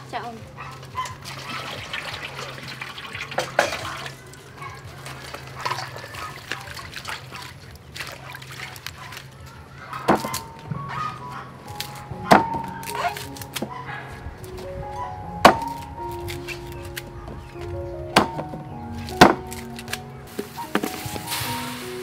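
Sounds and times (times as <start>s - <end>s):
water splashing and sloshing: 0.7s - 14.7s, 15.4s - 22.0s
water poured into metal bowl: 1.2s - 4.4s.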